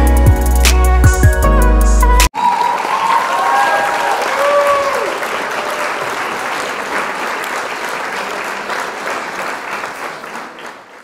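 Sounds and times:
crowd applause: 2.3s - 11.0s.

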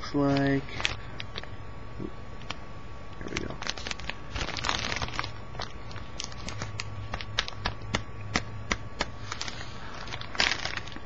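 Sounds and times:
plastic bag crinkling: 0.3s - 1.4s, 3.2s - 7.7s, 9.2s - 11.0s.

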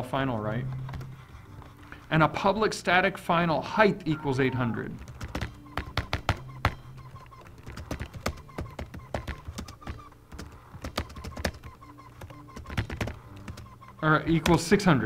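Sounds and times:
computer keyboard typing: 0.7s - 2.0s, 4.9s - 14.8s.

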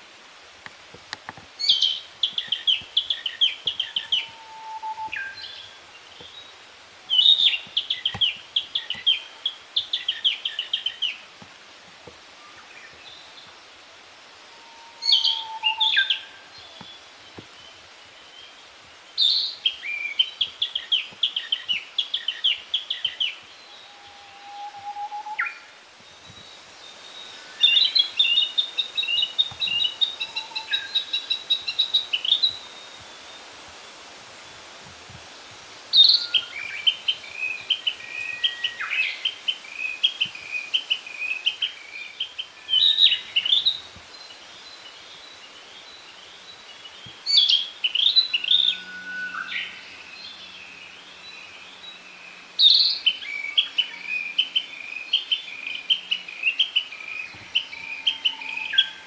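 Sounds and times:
bird singing whistled notes: 1.6s - 6.4s, 14.6s - 17.0s, 19.2s - 33.4s, 35.9s - 44.3s, 47.2s - 52.0s, 52.6s - 59.0s.

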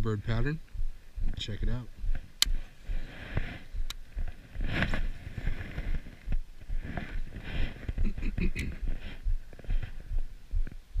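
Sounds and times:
clothing rustling: 2.2s - 8.0s.

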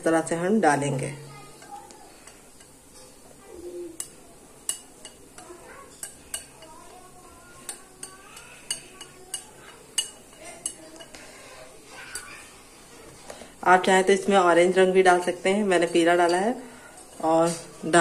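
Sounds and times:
whisk clinking against glass bowl: 4.0s - 6.9s, 7.5s - 11.2s, 15.1s - 17.2s.

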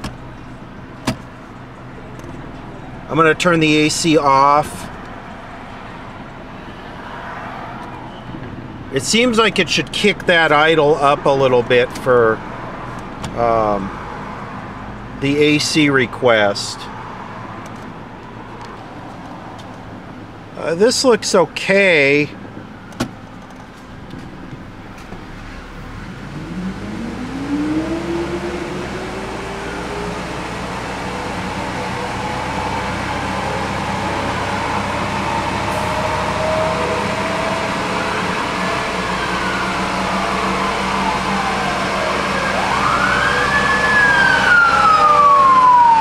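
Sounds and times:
car engine on dynamometer: 0.0s - 46.0s
ambulance siren wailing: 26.0s - 46.0s.

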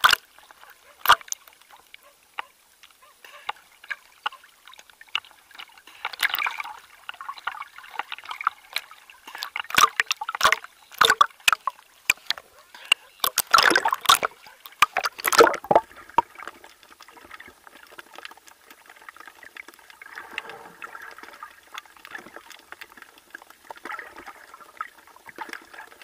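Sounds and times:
sharp water splashes: 0.0s - 1.5s, 3.3s - 16.4s
small waves lapping: 0.0s - 26.0s.

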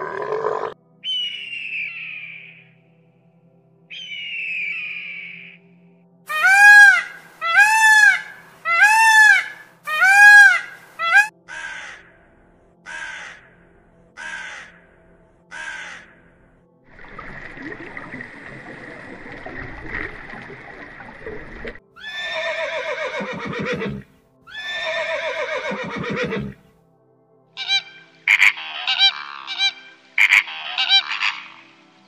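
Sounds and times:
flamingos honking: 6.3s - 11.3s, 27.6s - 31.6s
horse whinnying: 22.0s - 26.6s.

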